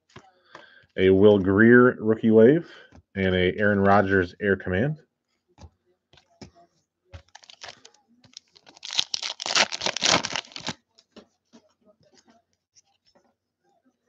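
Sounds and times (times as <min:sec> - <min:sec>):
foil wrapper tearing and crinkling: 0:07.3 - 0:10.8.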